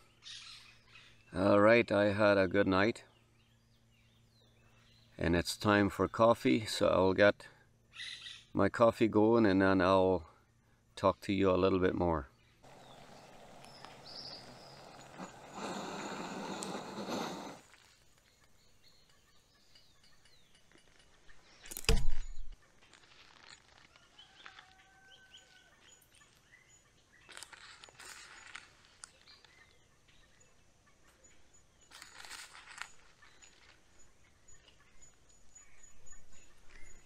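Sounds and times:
faint bird calls: 12.6 - 21.6
gas stove burner hissing: 12.7 - 17.7.

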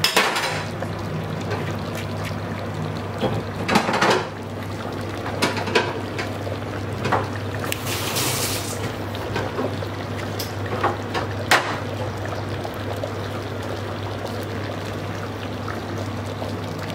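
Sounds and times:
broth boiling and bubbling: 0.0 - 16.9
pops and splutters: 1.3 - 4.3.

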